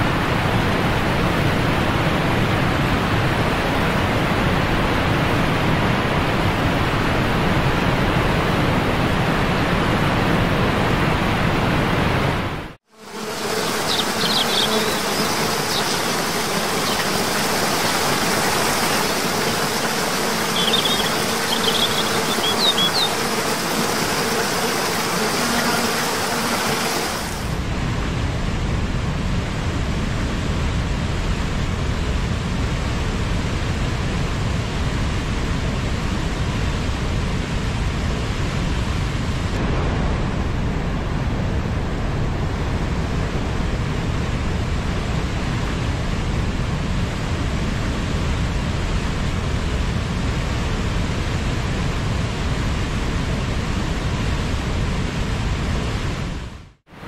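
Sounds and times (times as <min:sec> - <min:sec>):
river surging through gorge: 0:13.1 - 0:27.7
waterfall rushing: 0:13.3 - 0:27.6
bird chirps: 0:13.7 - 0:19.1, 0:19.8 - 0:23.3.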